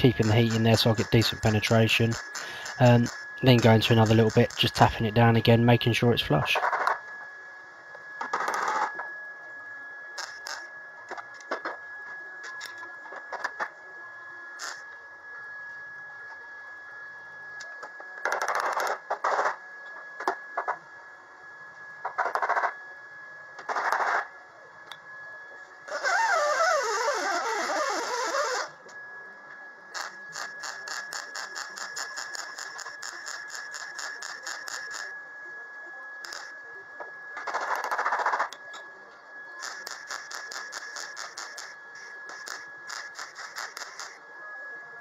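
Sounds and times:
mig welder welding: 0.0s - 5.2s, 10.2s - 11.8s, 14.6s - 14.8s, 17.6s - 19.6s, 25.9s - 28.8s, 29.9s - 35.1s, 36.2s - 36.6s, 39.5s - 44.2s.

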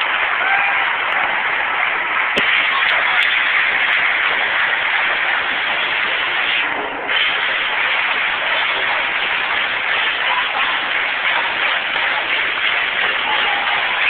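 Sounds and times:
stadium crowd cheering: 0.0s - 14.0s.

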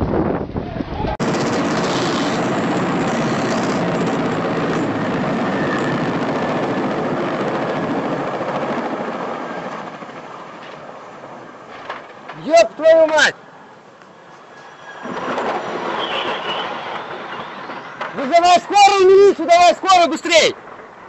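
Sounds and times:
helicopter engine and rotor: 1.2s - 12.0s.

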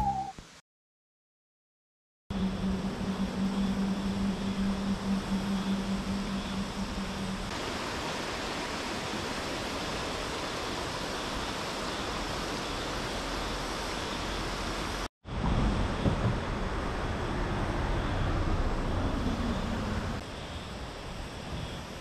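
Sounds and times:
low steady hum: 2.3s - 8.3s
river water rushing over rocks: 7.5s - 15.0s.

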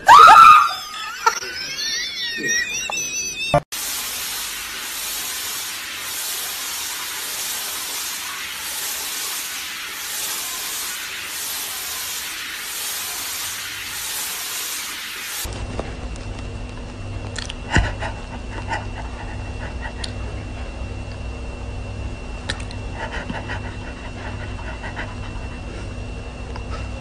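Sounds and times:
woman laughing scream: 0.0s - 3.6s
shower head spraying water: 3.7s - 15.5s.

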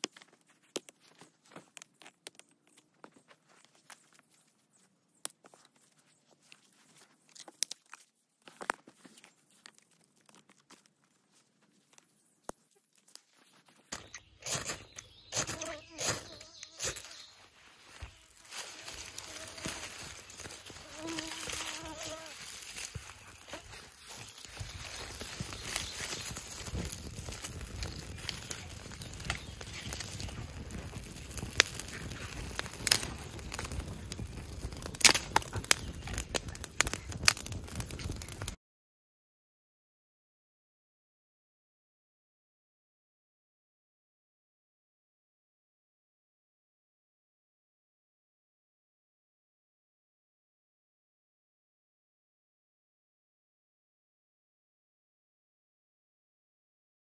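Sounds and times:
sticks clicking and crackling: 0.0s - 3.0s, 5.2s - 13.3s, 18.2s - 38.6s
low rush of flame: 25.2s - 38.5s.

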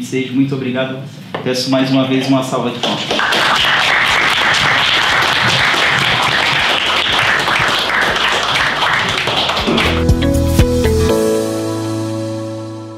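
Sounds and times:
people applauding: 2.8s - 10.2s
low outro music notes: 9.7s - 12.9s.

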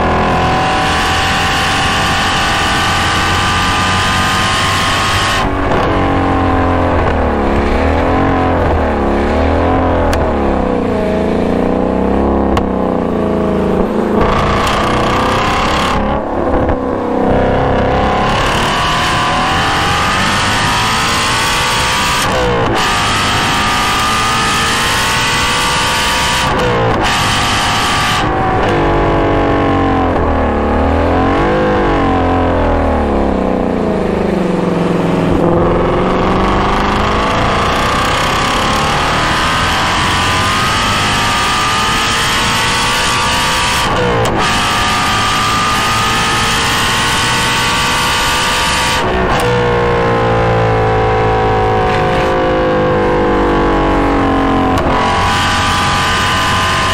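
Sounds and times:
car engine revving hard: 0.0s - 56.9s
engine rev blips: 0.0s - 56.9s.

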